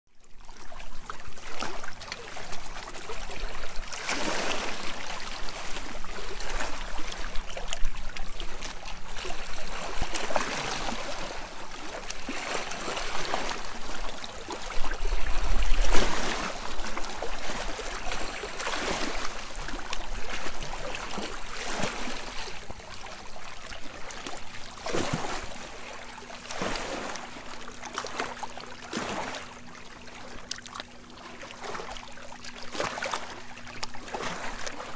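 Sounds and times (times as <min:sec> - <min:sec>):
water lapping against rocks: 0:00.4 - 0:34.9.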